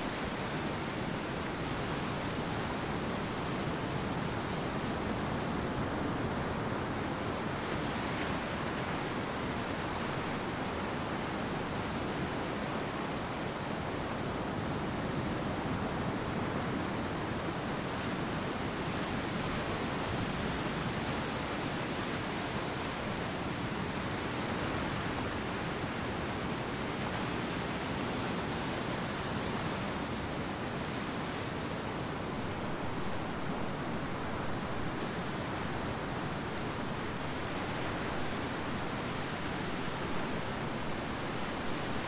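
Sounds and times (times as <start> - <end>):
ocean surf washing on beach: 0.0 - 42.0.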